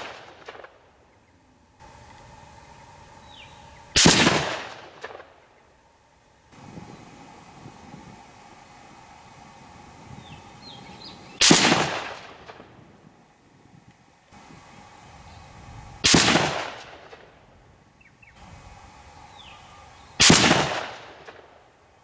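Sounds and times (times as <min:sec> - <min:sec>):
rifle shot crack: 0:00.0 - 0:00.9, 0:03.9 - 0:05.5, 0:11.4 - 0:12.9, 0:16.0 - 0:17.4, 0:20.2 - 0:21.6
high bird chirps: 0:02.6 - 0:04.0, 0:10.1 - 0:11.4, 0:19.1 - 0:20.2.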